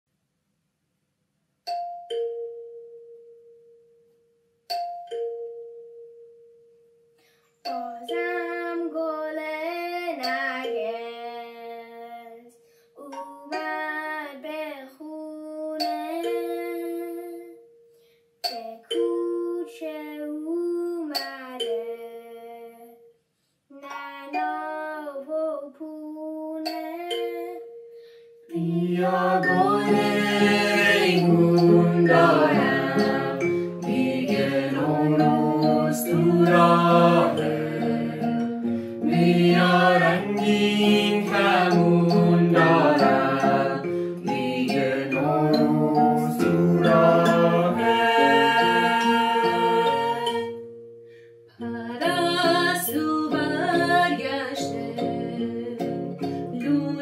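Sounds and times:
soft singing or humming: 7.7 - 17.6, 18.5 - 23.0, 23.7 - 27.6, 28.5 - 50.6, 51.6 - 57.0
acoustic guitar melody: 26.9 - 57.0.

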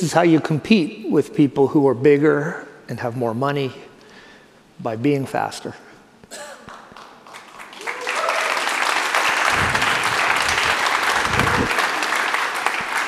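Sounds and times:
audience applause: 6.7 - 13.0.

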